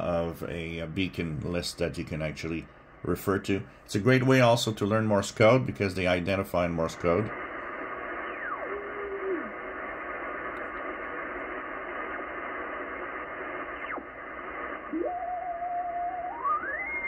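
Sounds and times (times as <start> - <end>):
radio band noise hiss: 0.0 - 17.0
radio signals whistling: 7.3 - 17.0.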